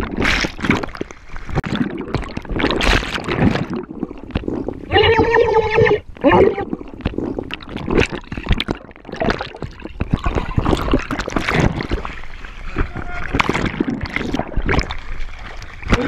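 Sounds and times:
water bubbling and churning: 0.0s - 16.0s.

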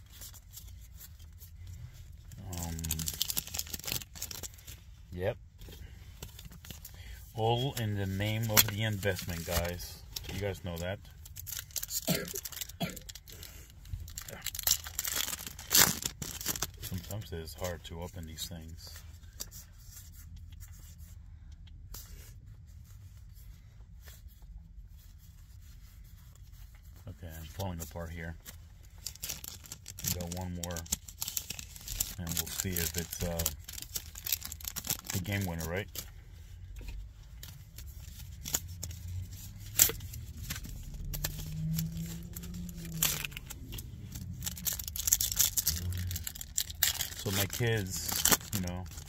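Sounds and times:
low steady hum: 0.0s - 49.0s
foil pack crinkling: 2.2s - 4.9s, 6.2s - 17.3s, 27.4s - 36.2s, 37.4s - 49.0s.

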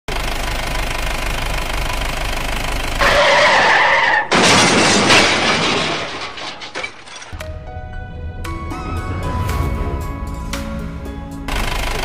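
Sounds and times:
car engine running: 0.1s - 3.6s, 9.7s - 12.0s
tyre screech: 3.0s - 4.4s
loud crash: 4.3s - 7.4s, 8.2s - 11.8s.

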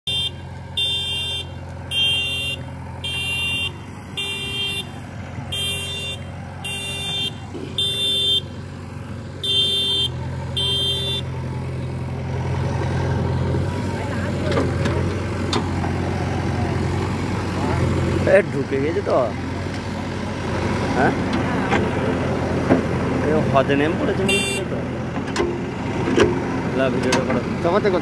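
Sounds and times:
diesel engine running: 0.0s - 28.0s
reversing alarm beeping: 0.1s - 4.9s, 5.5s - 8.5s, 9.4s - 11.3s.

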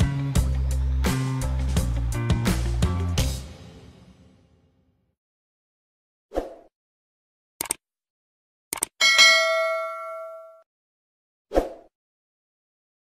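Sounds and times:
mouse clicks: 7.6s - 7.8s
bright bell ding: 9.0s - 10.6s.

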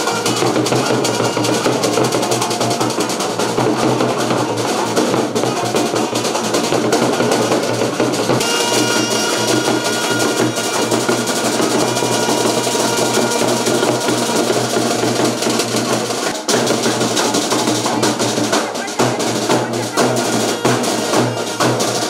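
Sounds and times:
saxophone melody: 0.0s - 2.9s, 8.4s - 15.6s, 19.7s - 22.0s
drums beating: 0.0s - 22.0s
street band playing: 0.0s - 22.0s.

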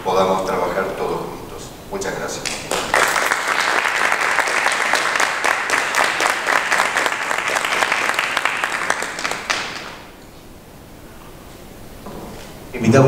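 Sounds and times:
audience applauding: 2.4s - 10.2s.

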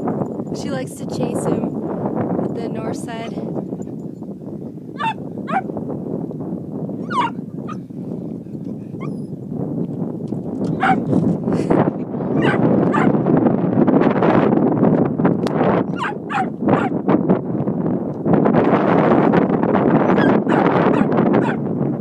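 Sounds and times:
dog whining and yipping: 5.0s - 5.7s, 7.0s - 7.8s, 9.0s - 9.3s, 10.8s - 11.1s, 12.3s - 13.1s, 15.9s - 16.9s, 20.0s - 21.6s.

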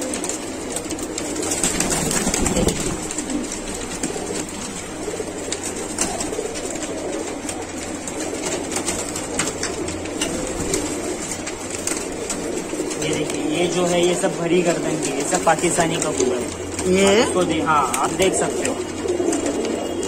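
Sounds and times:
pigeons cooing: 0.0s - 20.0s
wings flapping and scuffles: 0.0s - 20.0s.

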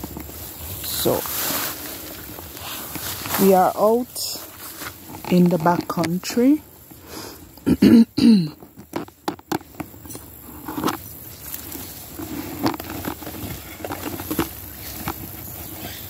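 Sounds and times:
grass rustling against phone: 0.0s - 7.7s, 8.4s - 16.0s.

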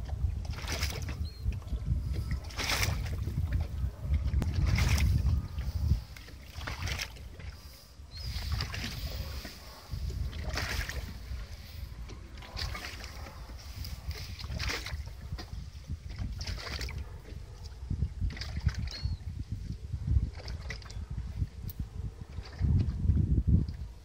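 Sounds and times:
water slapping against boat hull: 0.0s - 7.6s, 8.3s - 19.1s, 20.2s - 21.0s.

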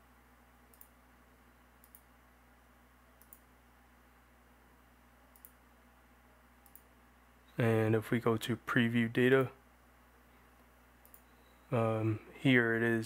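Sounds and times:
faint computer mouse clicks: 0.7s - 1.0s, 1.8s - 2.1s, 3.2s - 3.5s, 5.3s - 5.6s, 6.6s - 6.9s, 10.6s - 11.3s.

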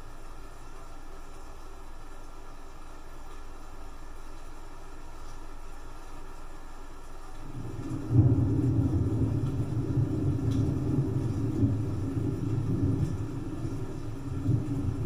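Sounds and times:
rain hiss: 0.0s - 15.0s
thunder rumbling: 7.4s - 15.0s.

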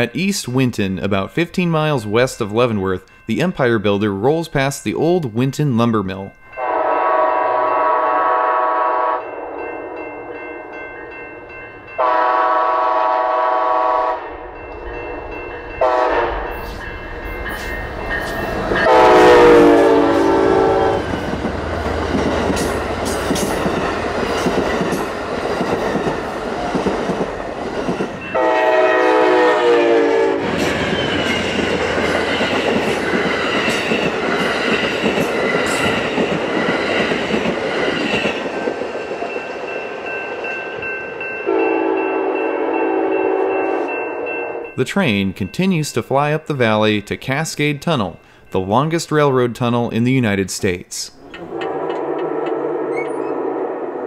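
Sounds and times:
train air horn blasts: 6.6s - 9.6s, 12.0s - 14.3s, 15.8s - 16.5s, 18.8s - 21.0s, 28.4s - 30.5s, 41.5s - 43.9s
train wheels rumbling on rails: 14.5s - 41.7s, 51.2s - 54.0s.

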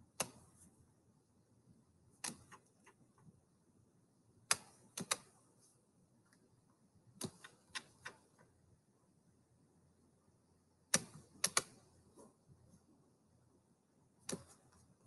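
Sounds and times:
computer mouse clicking: 0.1s - 0.6s, 2.2s - 3.3s, 4.5s - 5.4s, 7.2s - 8.5s, 10.9s - 11.9s, 14.2s - 14.9s.

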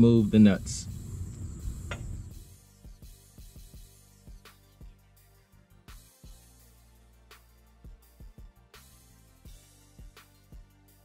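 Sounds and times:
soft low drum beats: 0.0s - 2.6s
quiet background music: 0.0s - 11.0s.

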